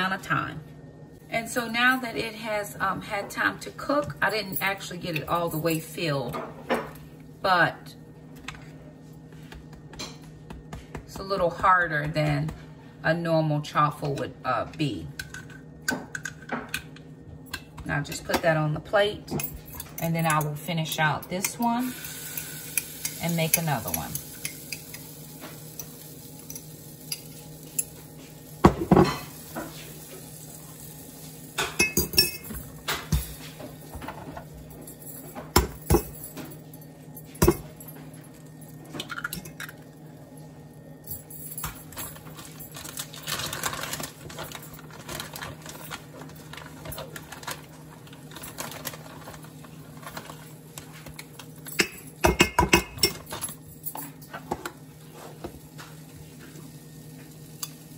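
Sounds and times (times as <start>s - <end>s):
utensils clinking on glass: 31.6s - 32.7s, 51.6s - 54.5s.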